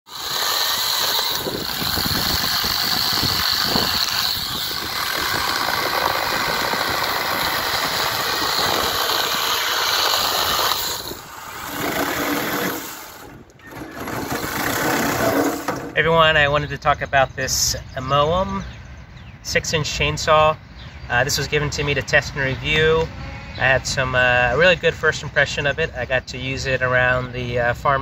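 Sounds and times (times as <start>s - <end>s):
chainsaw cutting branches: 0.1s - 16.0s.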